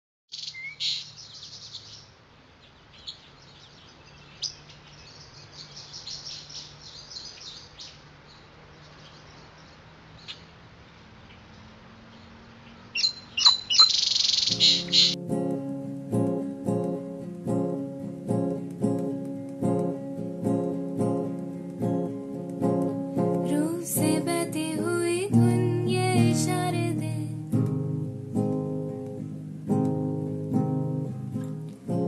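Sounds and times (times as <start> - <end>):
small birds chirping: 0.3 - 15.2.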